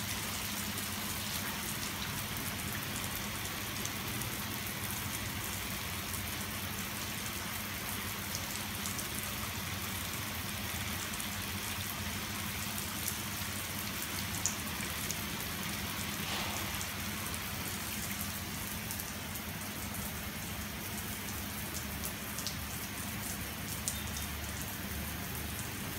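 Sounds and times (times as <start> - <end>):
hose water splashing on tiles: 13.9 - 20.4.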